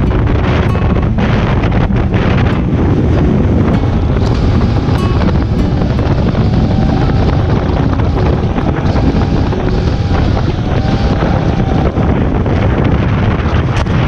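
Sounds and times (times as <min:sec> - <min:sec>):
boat wake rushing: 0:00.0 - 0:14.0
wind buffeting microphone: 0:00.0 - 0:14.0.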